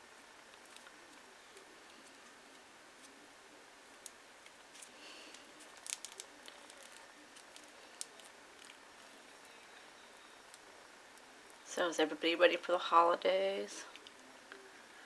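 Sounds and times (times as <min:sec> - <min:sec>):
paper crinkling: 0:04.4 - 0:09.6.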